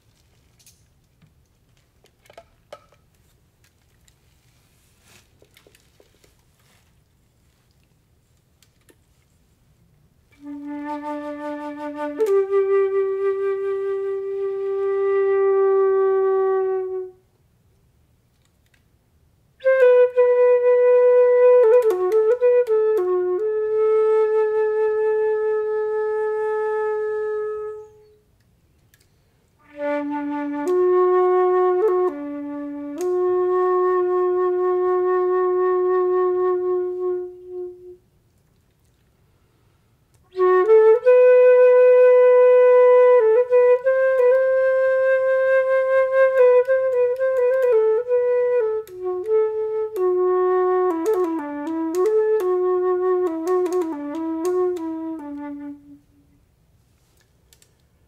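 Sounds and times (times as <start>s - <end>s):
flute melody: 10.3s - 17.3s, 19.6s - 28.4s, 29.6s - 38.0s, 40.2s - 56.4s.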